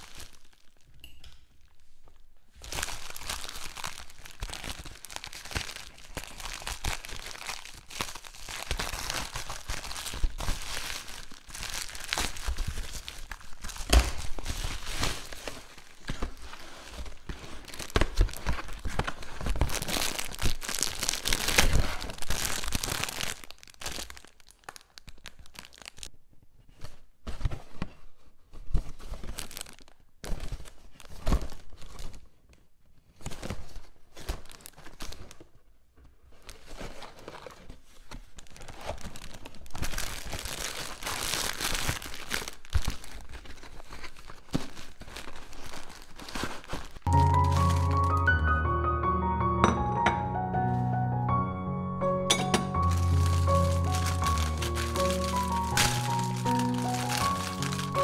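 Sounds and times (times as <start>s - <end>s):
plastic mailer bag crinkling: 0.0s - 1.0s, 2.6s - 26.1s, 28.9s - 32.2s, 33.2s - 35.6s, 36.3s - 48.4s, 52.4s - 58.0s
cardboard box being torn open: 52.9s - 58.0s.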